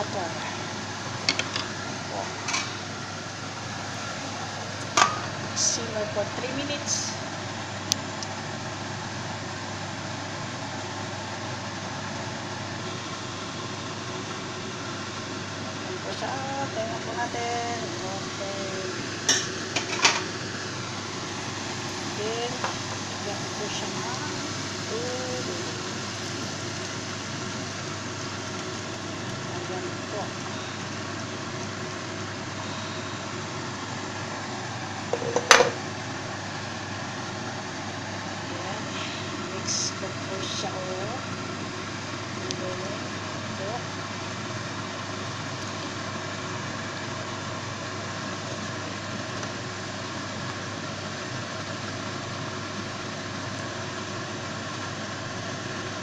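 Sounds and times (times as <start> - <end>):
pot simmering with hiss and hum: 0.0 - 56.0.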